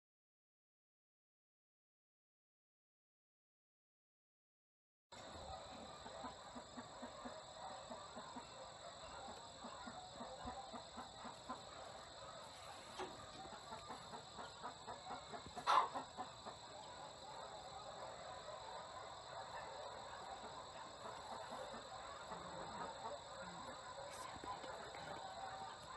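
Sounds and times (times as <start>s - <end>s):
chickens clucking: 5.2s - 25.9s.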